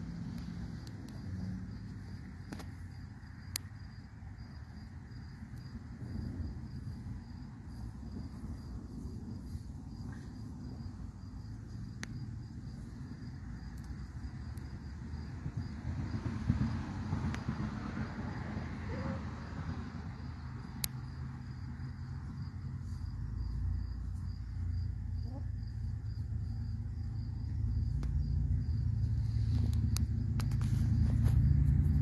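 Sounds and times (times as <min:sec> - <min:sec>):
low rumble: 0:00.0 - 0:32.0
high insect trill: 0:17.4 - 0:32.0.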